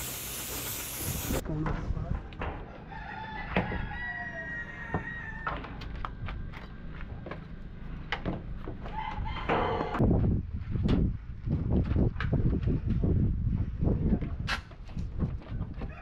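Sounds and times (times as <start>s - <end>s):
rooster crowing: 2.7s - 5.8s, 8.8s - 10.0s.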